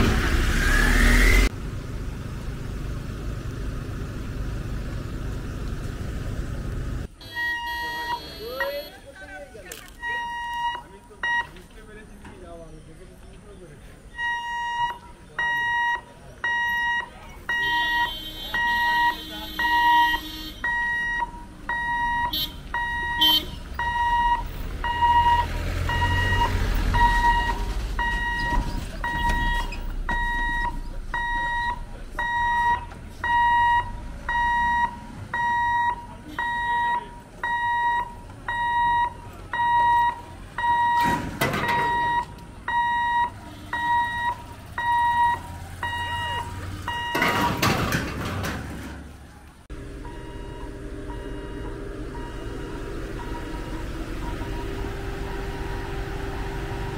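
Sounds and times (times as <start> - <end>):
loud rushes of noise: 0.0 - 1.6
vehicle rumbling past: 0.0 - 7.2, 20.6 - 36.7, 37.4 - 56.9
level crossing warning buzzer: 7.2 - 9.0, 14.2 - 47.5, 49.7 - 56.8.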